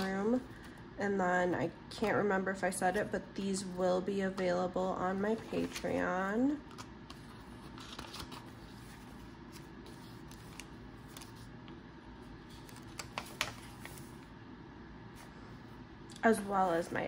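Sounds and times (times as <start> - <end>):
paper pages rustling: 6.7 - 11.6, 12.4 - 14.3.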